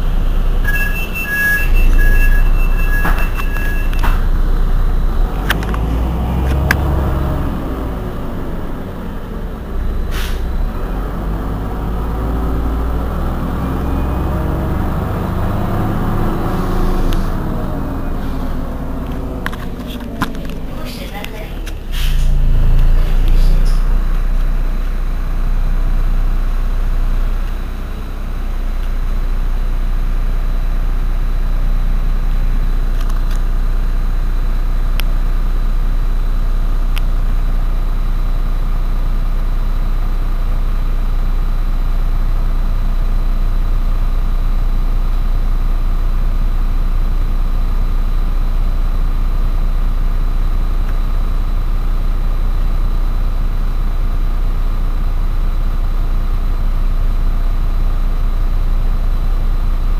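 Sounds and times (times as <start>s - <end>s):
bus engine idling: 0.0s - 59.9s
faint high whine: 0.1s - 4.9s.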